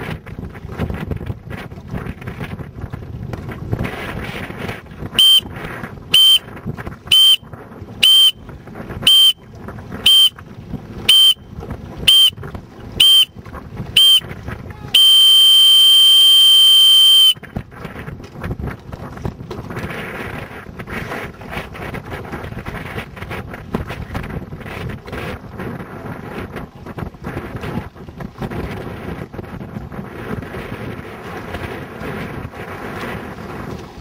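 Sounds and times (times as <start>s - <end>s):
wind buffeting microphone: 0.0s - 34.0s
long beep: 5.2s - 5.4s, 6.2s - 6.4s, 7.1s - 7.4s, 8.0s - 8.4s, 9.1s - 9.4s, 10.1s - 10.3s, 11.1s - 11.4s, 12.1s - 12.4s, 13.0s - 13.3s, 14.0s - 14.2s, 15.0s - 17.4s
short high beeps: 5.2s - 5.4s, 6.2s - 6.4s, 7.1s - 7.4s, 8.0s - 8.4s, 9.1s - 9.4s, 10.1s - 10.4s, 11.1s - 11.4s, 12.1s - 12.4s, 13.0s - 13.3s, 14.0s - 14.2s, 15.0s - 17.4s.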